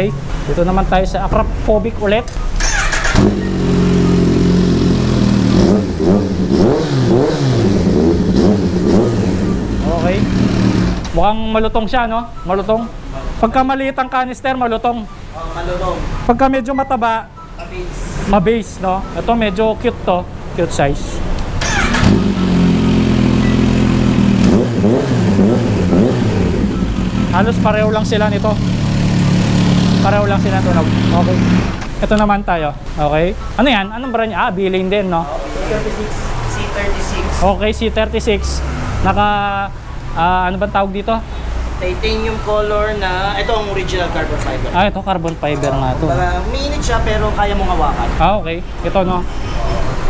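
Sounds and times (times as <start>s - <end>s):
motorcycle engine idling and revving: 2.3s - 11.2s, 21.6s - 32.1s.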